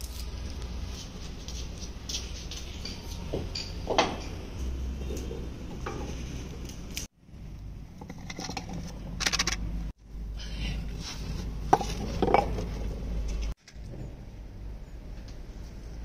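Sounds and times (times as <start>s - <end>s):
steady low rumble: 4.4s - 11.8s.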